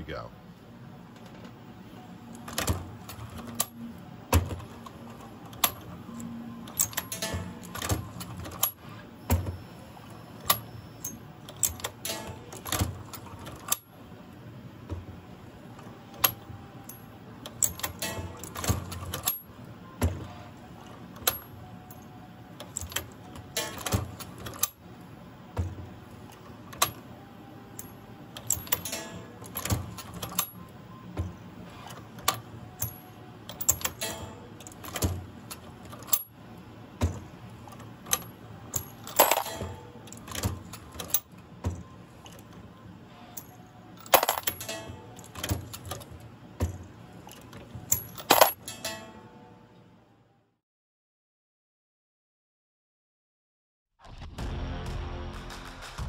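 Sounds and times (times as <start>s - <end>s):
metal clicks and clacks: 6.7s - 8.8s, 10.4s - 13.8s, 16.2s - 19.4s, 22.6s - 24.8s, 27.8s - 30.6s, 32.2s - 36.3s, 37.0s - 42.4s, 43.4s - 49.2s
brass cases clinking and rattling: 6.7s - 9.6s, 16.2s - 19.5s, 22.7s - 24.8s, 27.8s - 31.4s, 32.3s - 36.3s, 37.0s - 42.4s, 43.3s - 49.2s
background music: 54.3s - 56.0s.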